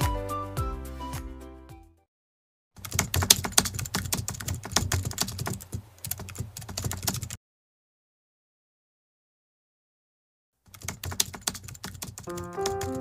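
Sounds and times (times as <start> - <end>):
intro music: 12.3 - 13.0.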